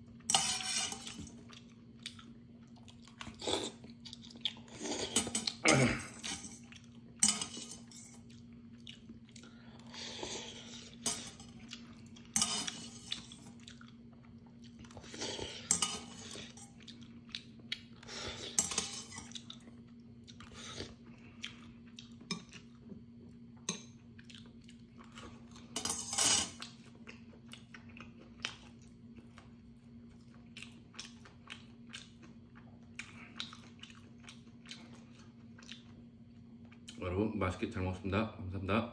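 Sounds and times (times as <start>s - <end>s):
chewing: 1.0s - 25.8s, 26.6s - 37.0s
metal utensils clinking on bowl: 7.2s - 8.2s, 12.3s - 13.4s, 15.6s - 16.7s, 18.6s - 19.3s, 25.8s - 26.6s.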